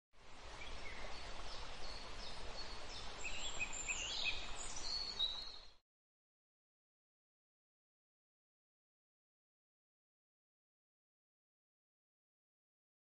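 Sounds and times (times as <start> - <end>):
background hiss and rumble: 0.2 - 5.8
birds chirping: 0.3 - 5.8.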